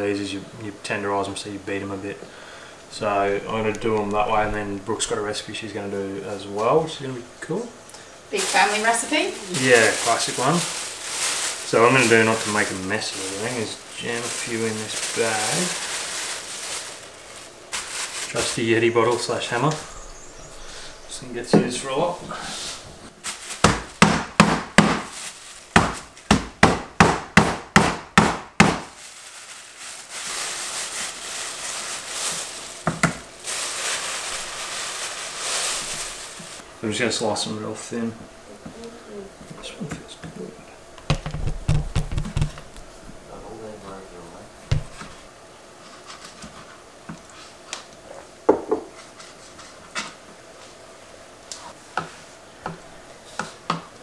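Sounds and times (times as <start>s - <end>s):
plastic bag rustling: 2.9s - 5.4s, 8.3s - 26.3s, 28.8s - 36.7s, 41.0s - 46.8s
pounding thuds on cutting board: 23.6s - 25.1s, 25.8s - 28.9s, 41.1s - 42.6s, 44.7s - 45.0s
knock: 41.1s - 42.6s, 48.5s - 48.9s.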